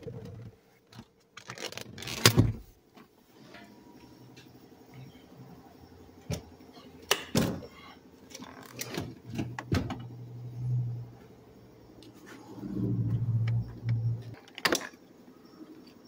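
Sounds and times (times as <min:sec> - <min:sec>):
low hum: 0:10.0 - 0:14.6.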